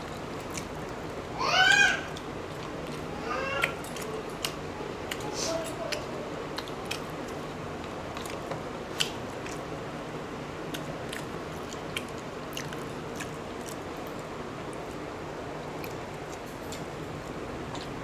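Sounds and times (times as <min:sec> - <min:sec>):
close chewing: 0:00.4 - 0:01.0, 0:02.1 - 0:09.7, 0:10.7 - 0:15.0.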